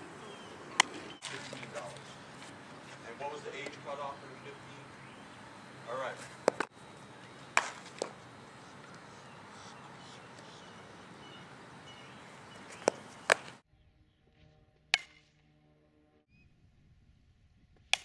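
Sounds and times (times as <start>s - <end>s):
outdoor background noise: 0.0s - 18.0s
softball hitting bat and glove: 0.7s - 4.0s, 6.1s - 9.1s, 12.5s - 13.6s, 14.9s - 15.6s.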